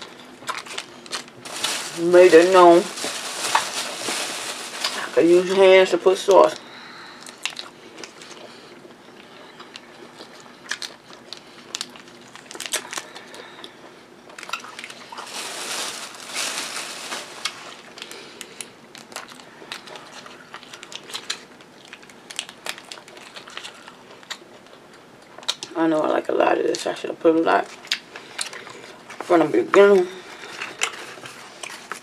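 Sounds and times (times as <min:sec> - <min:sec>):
crunching and crinkling: 0:00.0 - 0:25.8, 0:27.6 - 0:32.0
plastic packet rustling: 0:00.4 - 0:06.6, 0:10.7 - 0:13.4, 0:14.3 - 0:24.0.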